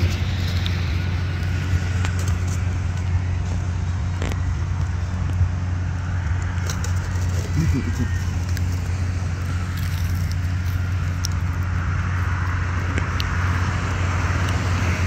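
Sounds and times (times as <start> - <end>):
low engine hum: 0.0 - 15.0
foam box clicking and crackling: 6.3 - 8.8.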